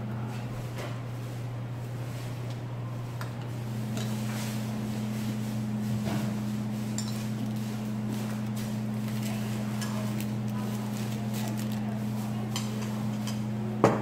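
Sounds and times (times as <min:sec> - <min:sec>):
steady low hum: 0:00.0 - 0:14.0
chopsticks and bowls clinking: 0:06.9 - 0:07.8, 0:12.2 - 0:13.5.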